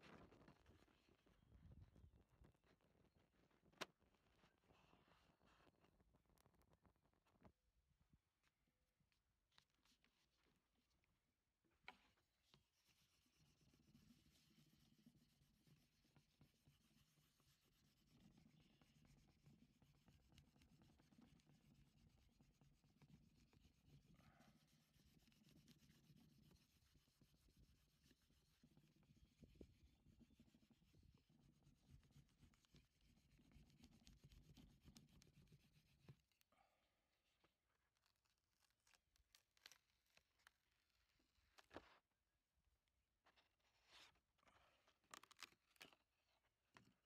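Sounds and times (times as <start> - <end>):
hand tool rubbing on paper: 12.2 - 36.4.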